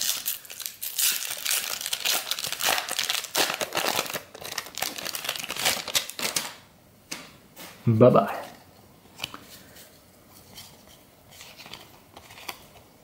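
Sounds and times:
foil wrapper crinkling and tearing: 0.0 - 6.6.

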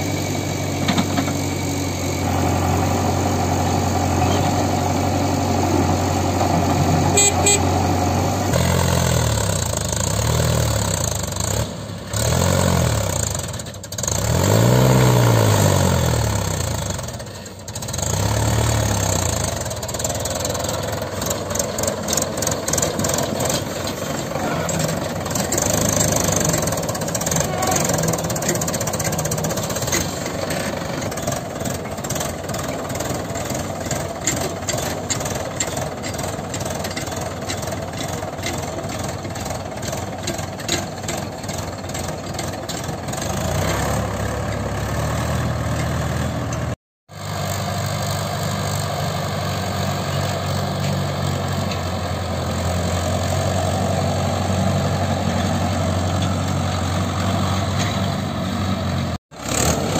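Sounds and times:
tractor diesel engine revving: 0.0 - 59.9
rapid uneven engine clatter: 16.7 - 45.0.

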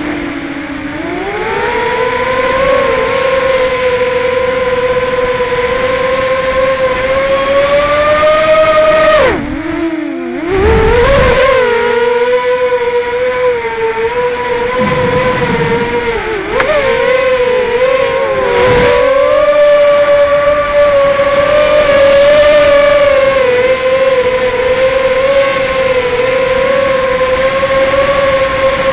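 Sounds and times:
drone motors whining: 14.8 - 16.8.

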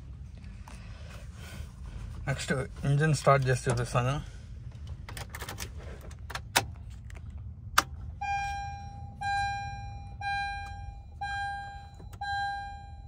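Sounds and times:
dashboard warning chime: 8.1 - 13.0.

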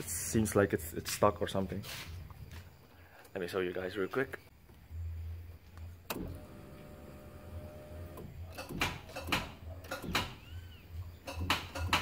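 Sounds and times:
car starter humming: 6.0 - 8.7
car starter clicks: 6.0 - 10.1.

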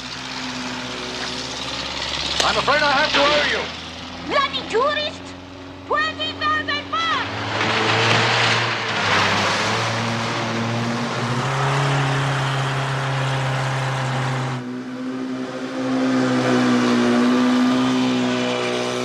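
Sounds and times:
boat engines running: 0.0 - 8.4.

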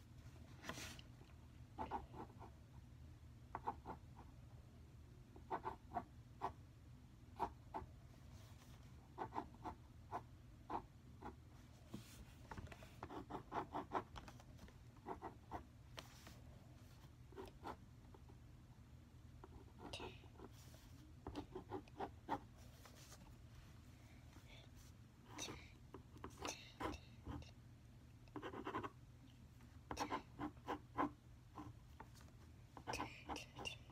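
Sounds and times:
marker scratching on paper: 13.0 - 14.2, 28.4 - 29.0.

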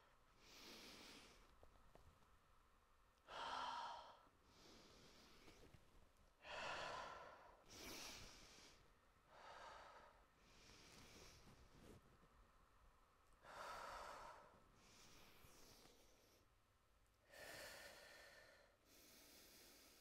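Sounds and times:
woman breathing deeply: 0.3 - 1.6, 3.2 - 5.8, 6.4 - 11.7, 13.4 - 16.5, 17.2 - 20.0.

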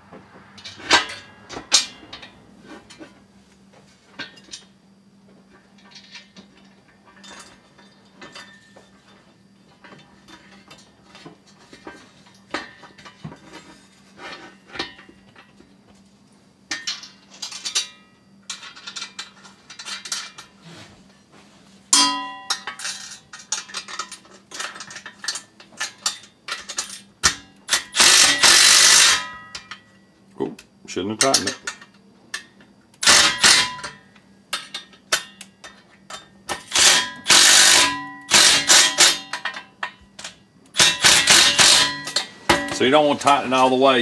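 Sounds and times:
metal parts clinking and clanking: 0.6 - 3.2, 4.2 - 4.7, 5.6 - 15.7, 16.7 - 20.6, 21.9 - 30.0, 31.1 - 44.0
sharp ringing metal clang: 21.9 - 22.8
cordless impact driver: 27.8 - 29.2, 33.0 - 33.7, 36.7 - 39.2, 40.8 - 41.9.

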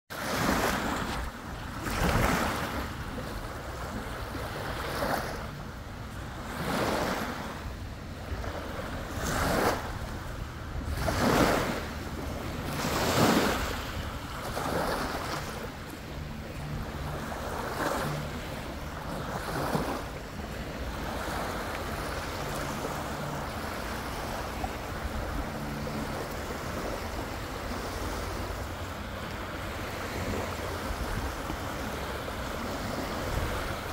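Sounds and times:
small waves washing up beach: 0.1 - 33.9.

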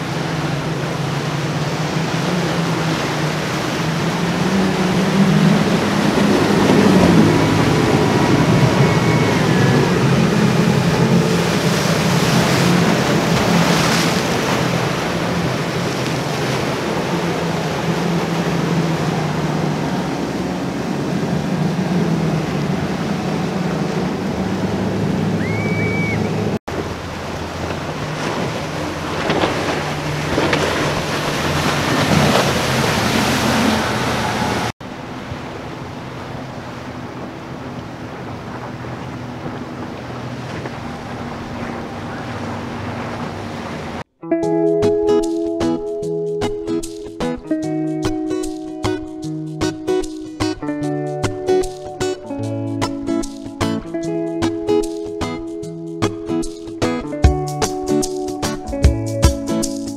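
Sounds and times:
wind buffeting microphone: 0.0 - 44.1
outboard engines droning: 0.0 - 44.4
waves and splashing wake: 0.0 - 59.9.

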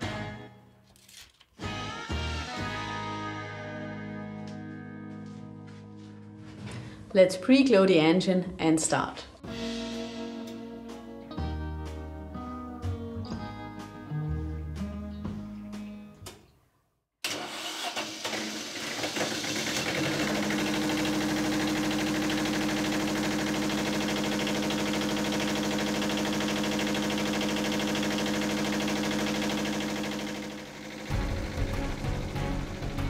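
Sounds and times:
diesel generator engine running: 18.0 - 33.0.

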